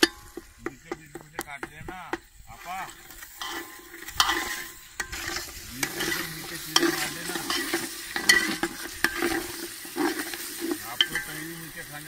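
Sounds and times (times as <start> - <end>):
spoon knocking against pot: 0.0 - 2.3, 11.0 - 11.5
metal spoon scraping pot: 0.0 - 12.0
oil sizzling: 0.0 - 12.0.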